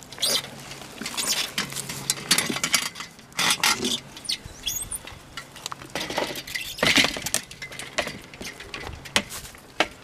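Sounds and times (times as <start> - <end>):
bird chirp: 4.2 - 5.0
rustling and scuffing: 8.8 - 9.7.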